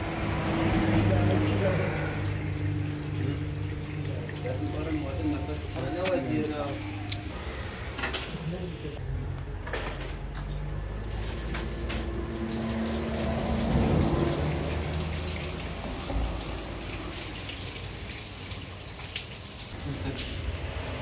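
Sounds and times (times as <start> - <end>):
tap water running: 0.0 - 7.2, 10.7 - 21.0
hands washing chicken: 0.4 - 7.3, 10.9 - 20.6.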